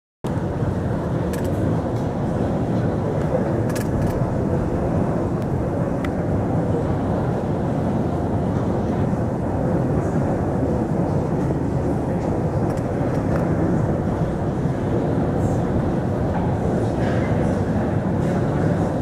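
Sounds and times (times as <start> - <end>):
low rumbling background noise: 0.2 - 19.0.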